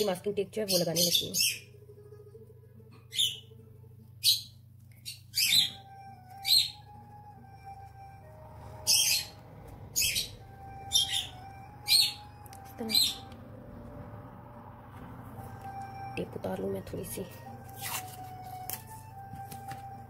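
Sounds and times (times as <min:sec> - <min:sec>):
bird chirping: 0:00.0 - 0:01.8, 0:03.0 - 0:03.6, 0:04.2 - 0:07.0, 0:08.8 - 0:13.3
steady low hum: 0:01.4 - 0:20.0.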